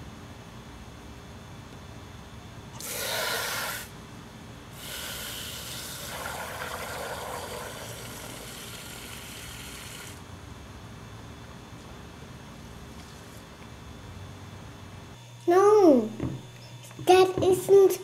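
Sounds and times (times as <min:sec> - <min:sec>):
hose spraying into plastic bucket: 0:02.8 - 0:03.9, 0:04.8 - 0:10.2.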